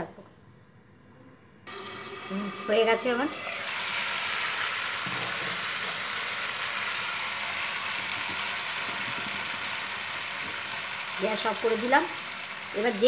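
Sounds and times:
fish in gravy sizzling: 1.7 - 13.0.

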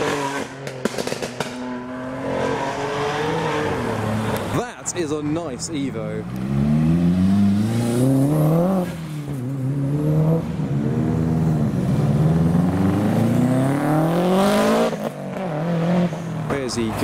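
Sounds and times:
car engine revving: 0.0 - 4.6, 6.0 - 17.0
car accelerating away: 6.2 - 16.5.

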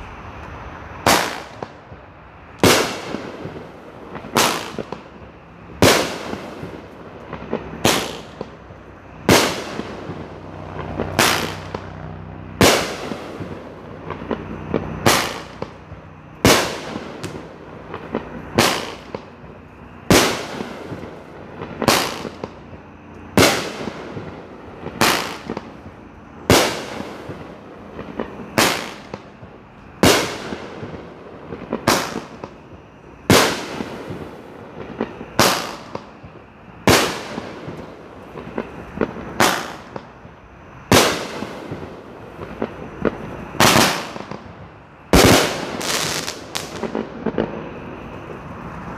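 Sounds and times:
firework bangs with echo: 1.0 - 2.0, 2.6 - 11.9, 12.5 - 47.6.

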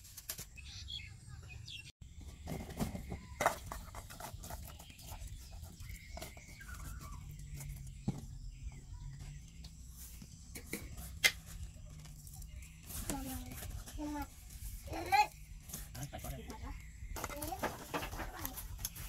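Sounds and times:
food rustling and knocking in pot: 17.1 - 19.0.

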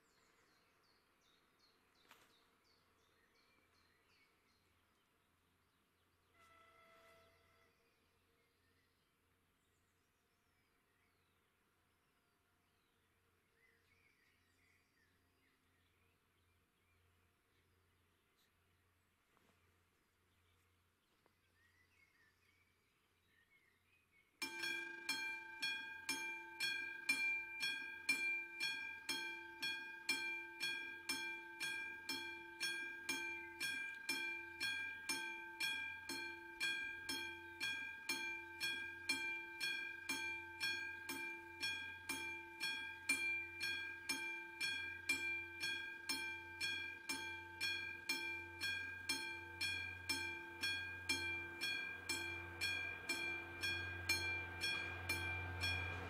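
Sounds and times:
level crossing warning bell: 24.4 - 56.0.

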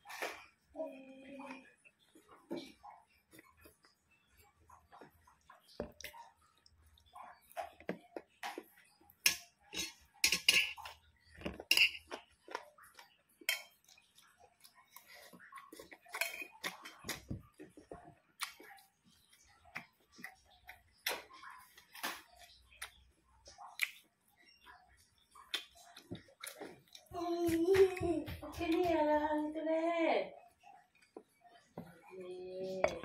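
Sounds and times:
chewing and lip smacks: 12.1 - 27.1.

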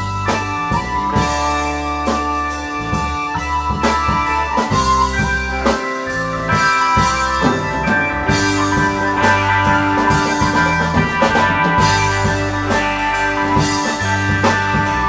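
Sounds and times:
instrumental rock band: 0.0 - 15.0.

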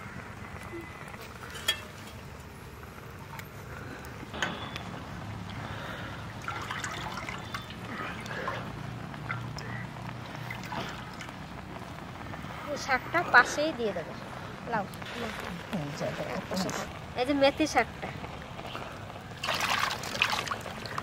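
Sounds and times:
hands splashing in pot of water: 6.4 - 8.4, 19.4 - 21.0.

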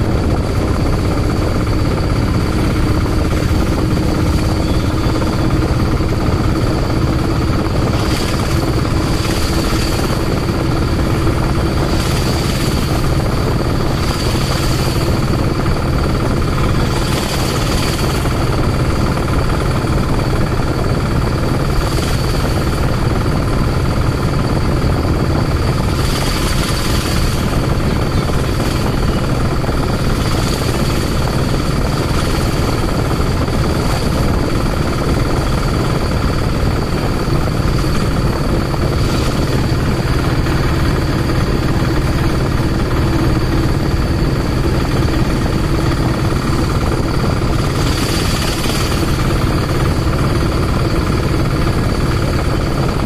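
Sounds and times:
vehicle engine and road noise: 0.0 - 53.0
wind rushing over microphone: 0.0 - 53.0.

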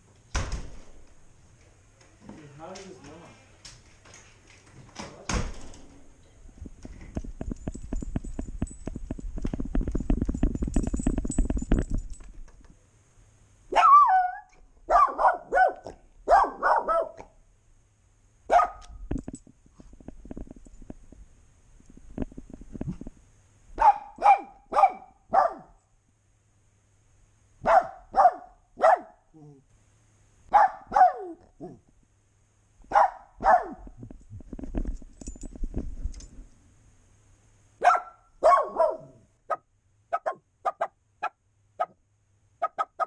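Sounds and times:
small dog barking: 13.7 - 17.4, 18.5 - 19.0, 23.8 - 25.8, 27.6 - 29.6, 30.5 - 31.8, 32.9 - 33.8, 37.8 - 42.0, 42.6 - 43.0.

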